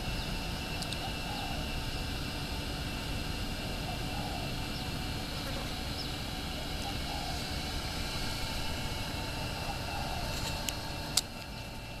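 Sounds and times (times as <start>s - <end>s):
rumbling background noise with hiss: 0.0s - 12.0s.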